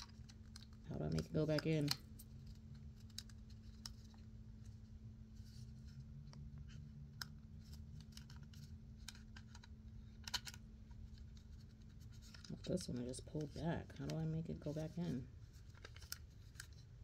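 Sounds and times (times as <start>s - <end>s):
plastic adapter clicks and rattles: 0.0s - 2.1s, 3.0s - 4.2s, 8.0s - 11.3s
faint steady hum: 0.0s - 17.0s.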